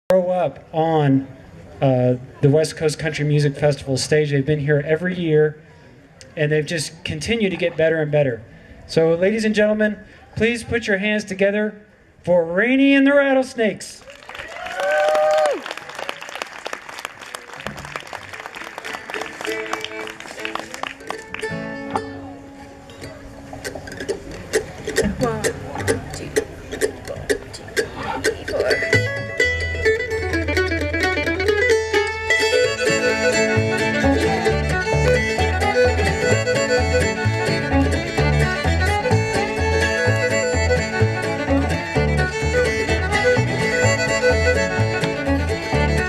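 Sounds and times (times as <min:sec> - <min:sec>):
audience applauding: 0:14.0 - 0:21.6
string band notes: 0:17.6 - 0:46.0
fiddle melody: 0:18.8 - 0:23.6, 0:28.8 - 0:46.0
guitar and mandolin: 0:18.8 - 0:46.0.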